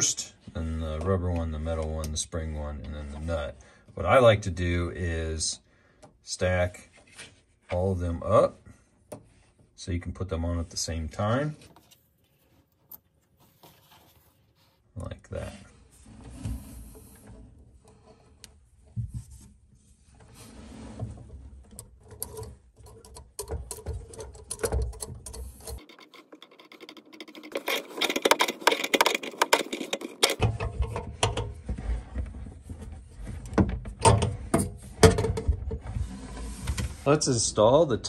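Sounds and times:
washers and nut clicking and scraping: 21.7 - 31.6.

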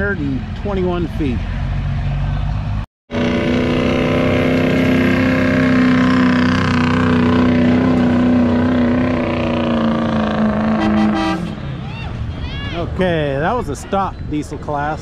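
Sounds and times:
diesel engine at high revs: 0.0 - 11.8.

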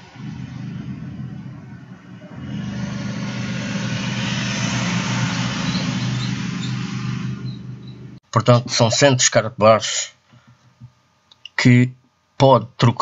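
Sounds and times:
rushing road traffic noise: 0.0 - 8.2
steady low hum: 0.0 - 11.4.

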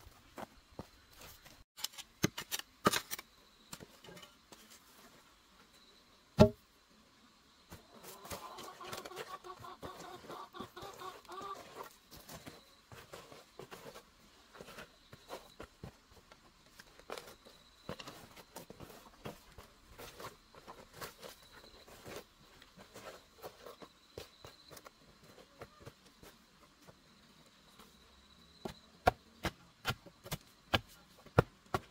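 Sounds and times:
boots stamping on soil: 7.7 - 31.9
chicken clucking: 7.8 - 12.0.

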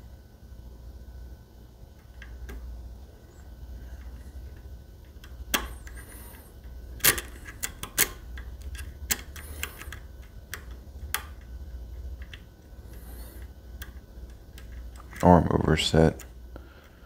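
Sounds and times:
pick scraping along pins: 2.1 - 17.0
lock pick metallic clicks: 7.0 - 11.5.

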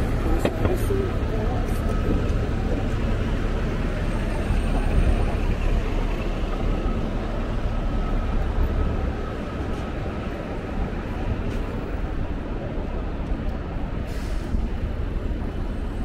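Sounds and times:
city street traffic: 0.0 - 16.0.

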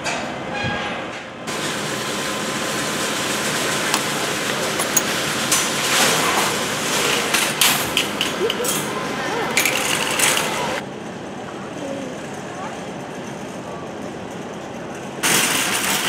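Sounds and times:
wire shopping cart rattling: 2.2 - 10.8, 15.2 - 16.0
metal clanks: 3.7 - 8.9.

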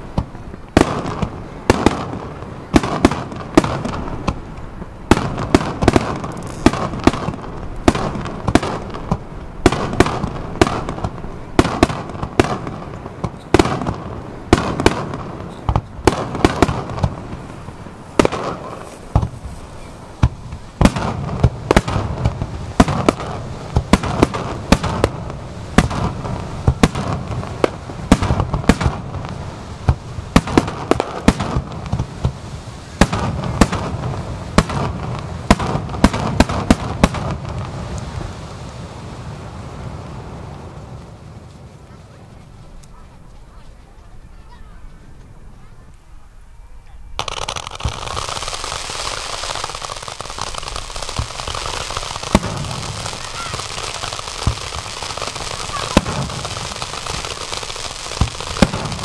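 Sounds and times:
echoing booms: 0.0 - 19.5, 20.1 - 32.4, 51.1 - 57.5, 58.1 - 59.0
firework shells bursting: 0.1 - 38.1, 47.2 - 59.0.

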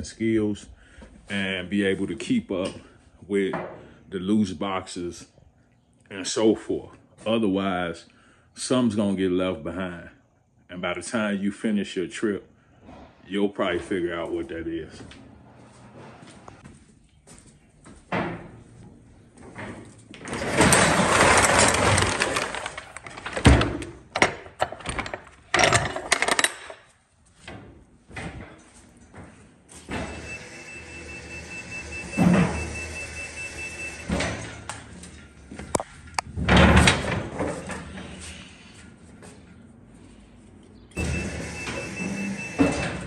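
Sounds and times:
pallet jack rattling and rolling: 19.6 - 26.8, 41.0 - 43.0.

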